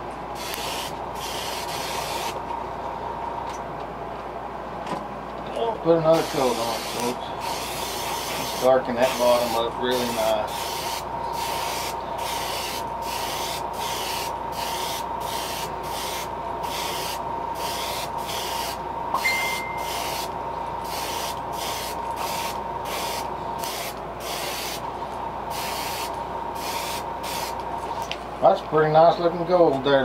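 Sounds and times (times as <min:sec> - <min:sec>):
airbrush hissing in pulses: 0:00.4 - 0:02.4, 0:06.1 - 0:18.8, 0:19.8 - 0:24.8, 0:25.5 - 0:27.6.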